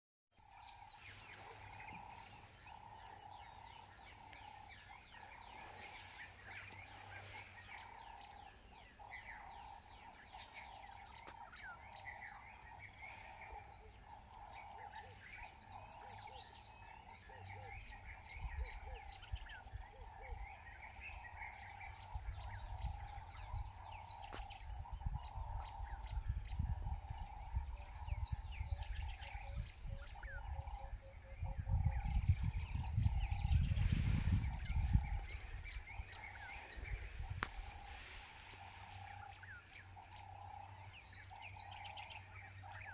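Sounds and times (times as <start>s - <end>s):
small birds chirping: 0.3s - 42.9s
wind buffeting microphone: 17.8s - 41.8s.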